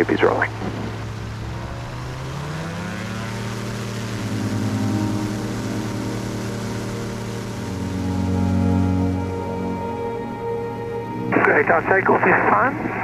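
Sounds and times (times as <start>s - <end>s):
light aircraft engine at full power: 0.0s - 13.0s.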